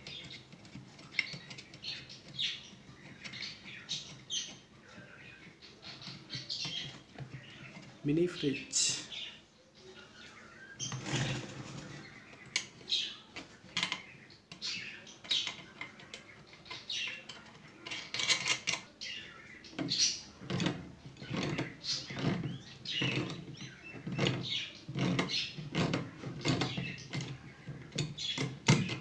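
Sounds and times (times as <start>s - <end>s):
pliers clicking and scraping on metal: 13.4s - 18.9s.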